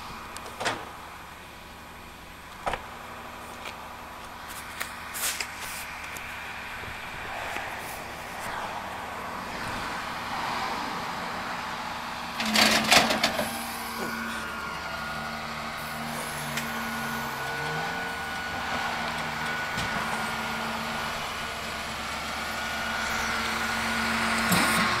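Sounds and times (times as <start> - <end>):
truck engine and hydraulic whine: 0.0 - 25.0
sudden rush of noise: 6.6 - 12.0.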